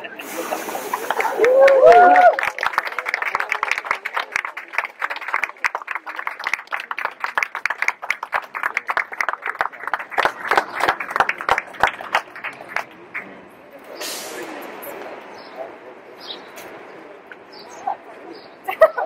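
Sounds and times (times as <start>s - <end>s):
audience applauding: 0.6s - 13.3s.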